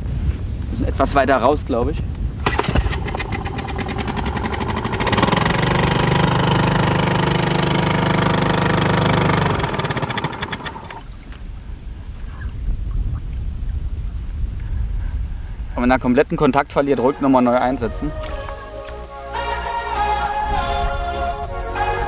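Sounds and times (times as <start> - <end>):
outboard motor running: 2.4 - 11.2.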